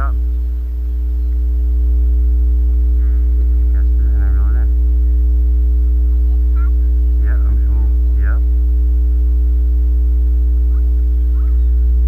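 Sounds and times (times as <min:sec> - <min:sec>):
faint high steady tones: 0:00.0 - 0:12.0
low electrical hum: 0:00.0 - 0:12.0.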